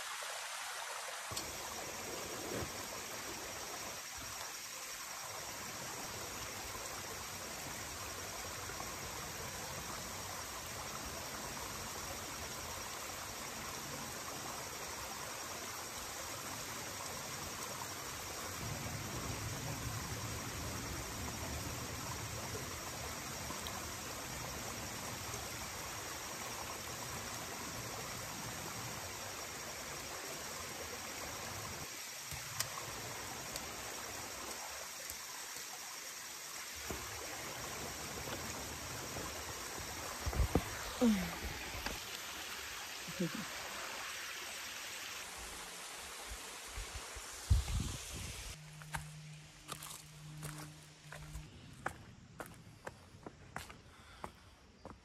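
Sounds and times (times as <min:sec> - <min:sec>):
waterfall rushing: 0:19.3 - 0:48.6.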